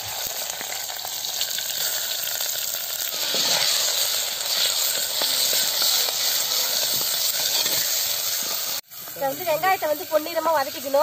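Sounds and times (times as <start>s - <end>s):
onions sizzling in oil: 0.0s - 11.0s
metal ladle stirring: 3.1s - 8.6s.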